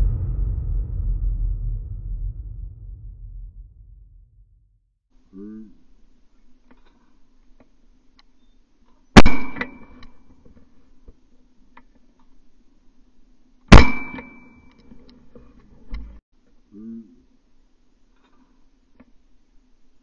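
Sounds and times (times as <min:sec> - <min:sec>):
sharp metallic clangs: 0:09.2 - 0:10.0, 0:13.7 - 0:14.7.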